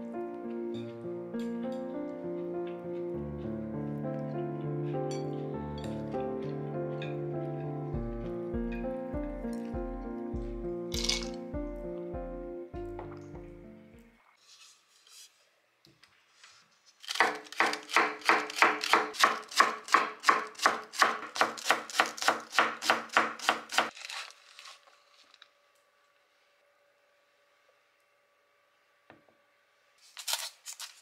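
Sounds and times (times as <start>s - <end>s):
knife chopping on wooden board: 17.1s - 23.9s.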